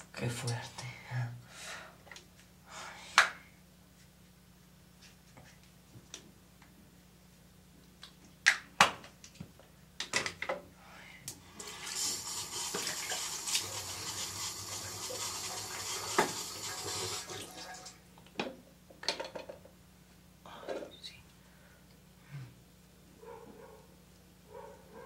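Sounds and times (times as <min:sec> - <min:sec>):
sink tap running: 0:11.5 - 0:18.0.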